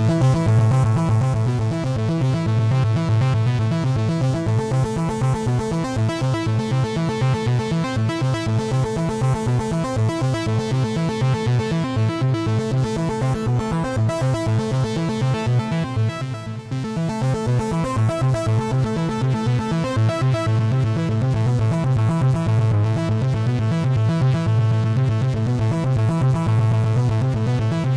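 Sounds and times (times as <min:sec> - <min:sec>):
sustained low synth bass: 0:00.0 - 0:06.8.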